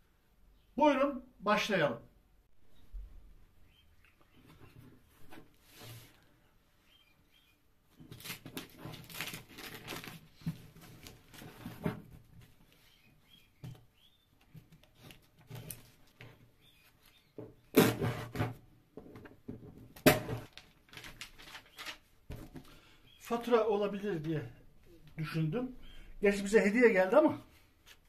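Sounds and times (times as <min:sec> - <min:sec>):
cardboard rustling: 0:07.9 - 0:12.9, 0:19.8 - 0:22.8.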